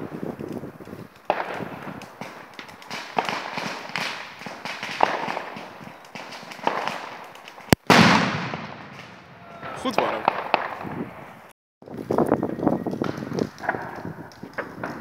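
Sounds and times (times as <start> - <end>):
firecracker bangs and crackling: 0.0 - 15.0
loud echoing firework blast: 1.3 - 7.1, 7.8 - 11.5.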